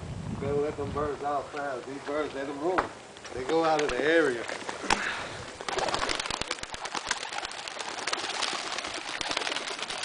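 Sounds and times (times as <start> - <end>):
pigeon wings flapping: 3.5 - 10.0.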